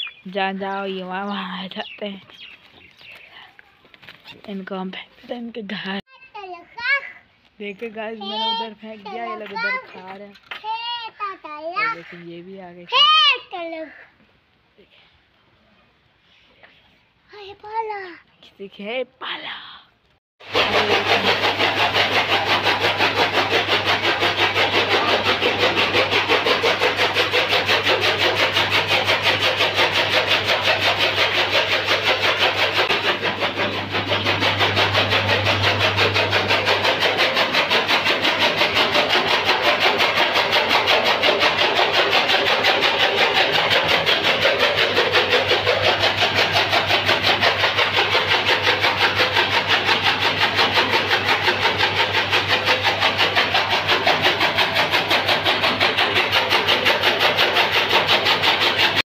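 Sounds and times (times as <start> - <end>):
chaff cutter chopping: 20.4 - 59.0
low drive hum: 32.1 - 40.1.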